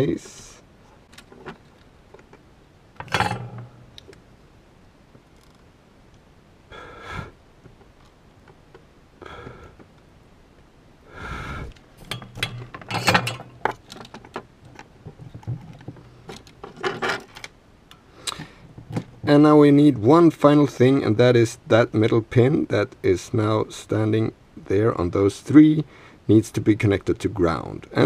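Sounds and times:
person breathing or sniffing: 0:06.7 - 0:07.4, 0:11.1 - 0:11.8.

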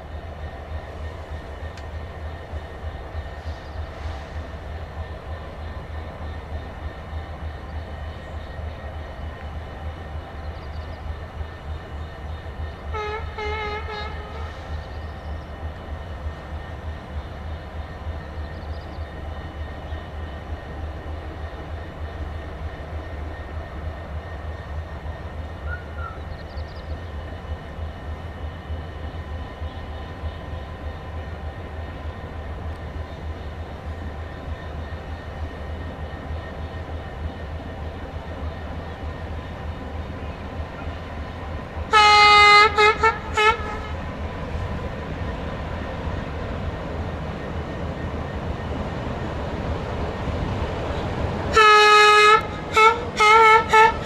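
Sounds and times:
locomotive engine running: 0:00.0 - 0:54.0
locomotive horn: 0:12.9 - 0:14.7, 0:41.9 - 0:44.0, 0:51.5 - 0:54.0.

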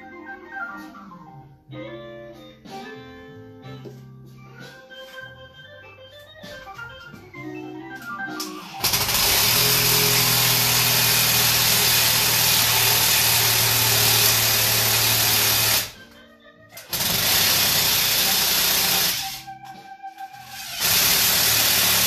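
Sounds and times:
cordless drill running: 0:08.6 - 0:16.0, 0:16.9 - 0:19.5, 0:20.4 - 0:22.0.

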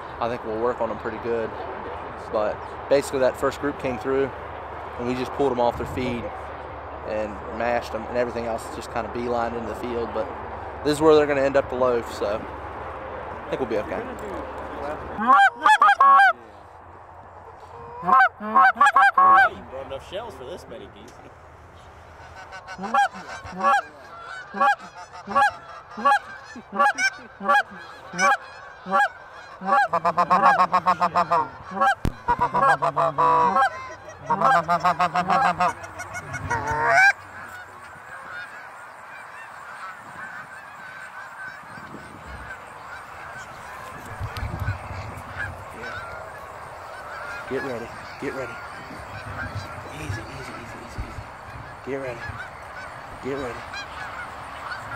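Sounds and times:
goose call honks and clucks: 0:15.1 - 0:16.4, 0:17.4 - 0:19.6, 0:22.2 - 0:54.9.

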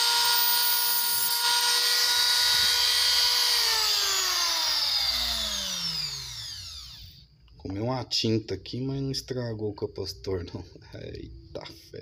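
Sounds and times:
rotary tool whining: 0:00.0 - 0:07.2.

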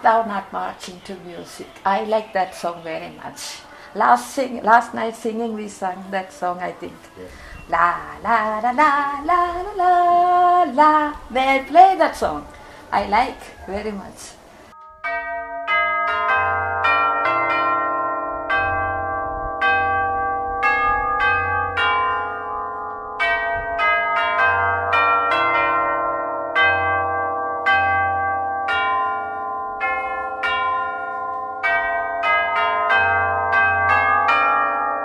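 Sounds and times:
tubular church bells playing: 0:14.7 - 0:35.0.

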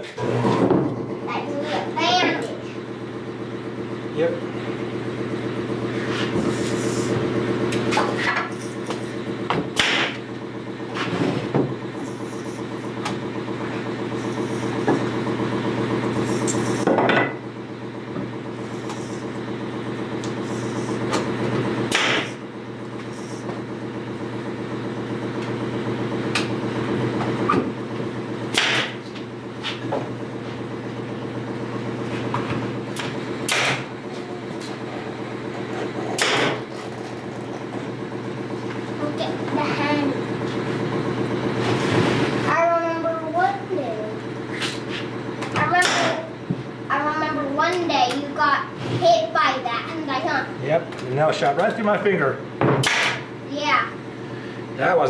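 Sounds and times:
air compressor humming: 0:00.0 - 0:55.0
nail gun firing: 0:09.8 - 0:10.2, 0:21.9 - 0:22.4, 0:28.5 - 0:29.0, 0:33.0 - 0:34.0, 0:36.2 - 0:36.6, 0:52.8 - 0:53.3.

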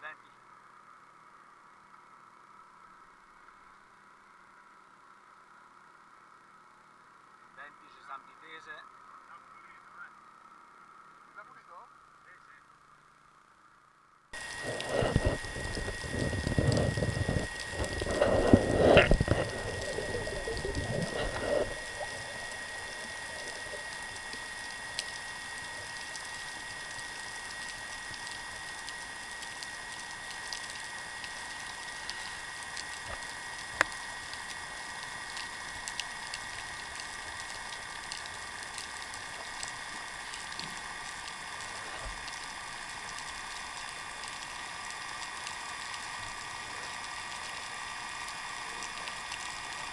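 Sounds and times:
underwater clicks and crackles: 0:14.4 - 0:49.9
underwater hiss: 0:14.4 - 0:49.9
loud rumbling noise: 0:14.5 - 0:24.4.

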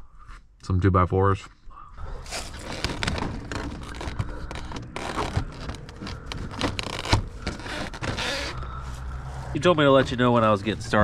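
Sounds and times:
vehicle low drone: 0:02.0 - 0:11.0
rustling handling noises: 0:02.2 - 0:11.0.

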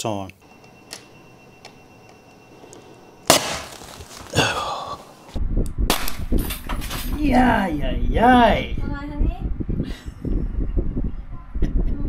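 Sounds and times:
electrical arcing cracks: 0:03.3 - 0:04.5.

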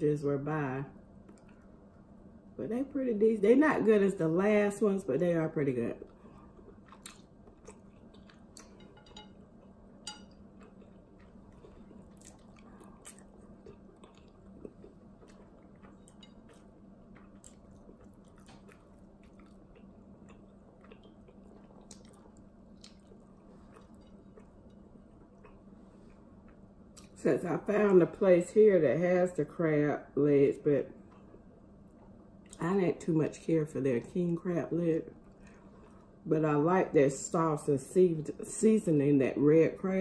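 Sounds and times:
low steady hum: 0:00.0 - 0:40.0
person chewing food: 0:06.0 - 0:27.2.

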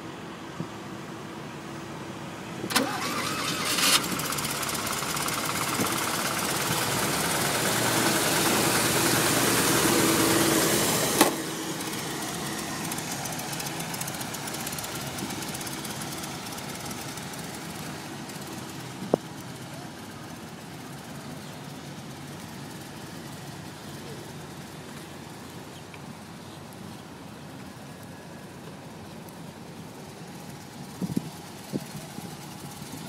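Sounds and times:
engine starting and running: 0:02.5 - 0:26.6, 0:29.0 - 0:33.0.

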